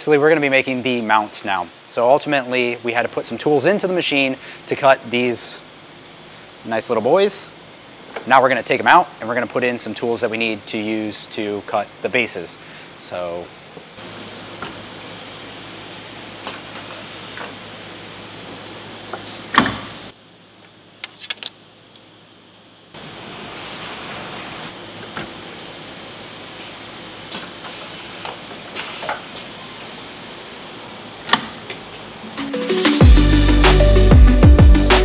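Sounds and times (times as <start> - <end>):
machine shop hum: 0.0 - 21.2, 21.8 - 35.0.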